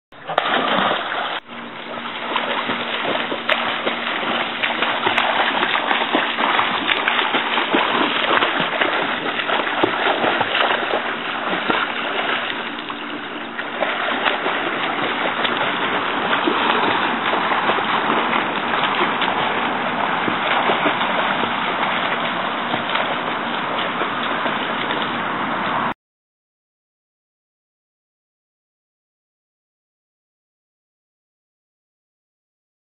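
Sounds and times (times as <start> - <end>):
water splashing: 0.1 - 25.9.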